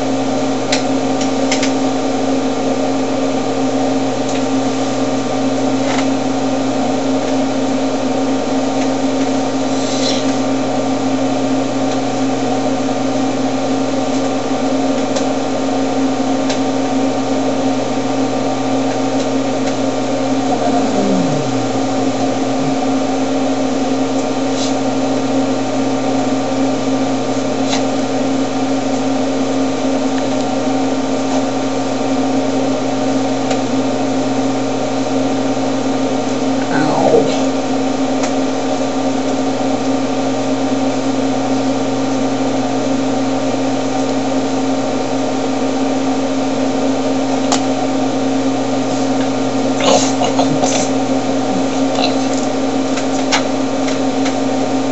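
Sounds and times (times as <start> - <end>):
machine hum: 19.4 - 24.5.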